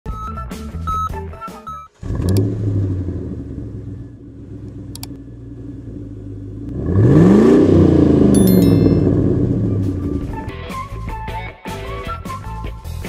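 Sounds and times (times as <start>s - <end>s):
car engine idling and revving: 1.9s - 8.4s, 9.0s - 10.5s.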